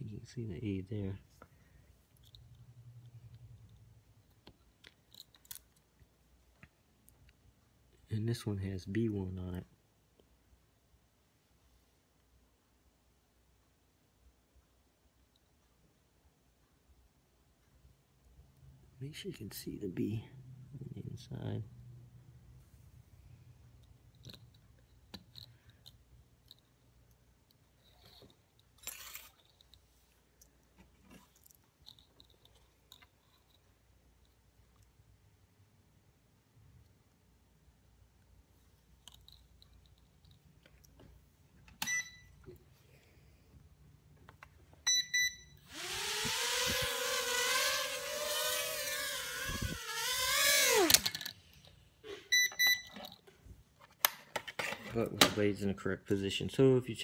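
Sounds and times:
quick beeps: 44.9 - 45.6, 52.3 - 53.0
plastic drone scraping: 45.8 - 51.2.

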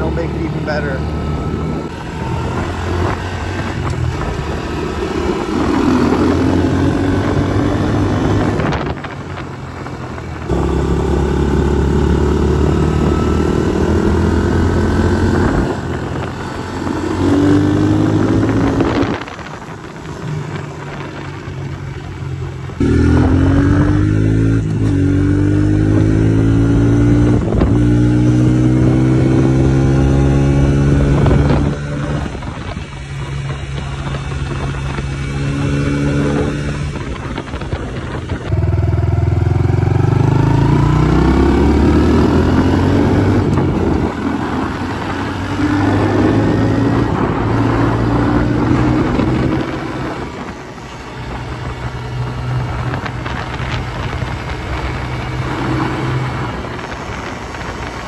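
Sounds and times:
motorbike engine accelerating: 0.0 - 58.0.

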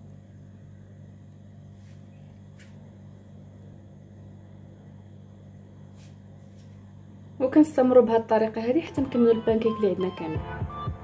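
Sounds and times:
low hum with pulsing: 0.0 - 11.0
soft hiss: 0.1 - 3.3, 5.6 - 7.1.

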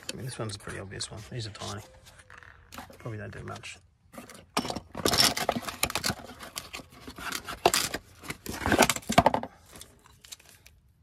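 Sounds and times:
cardboard rustling and scraping: 0.0 - 10.7.

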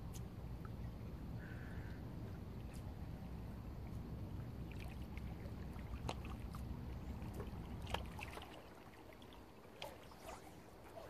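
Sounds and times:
steady low rumble: 0.0 - 9.5
sea lapping against rocks: 4.6 - 11.0.

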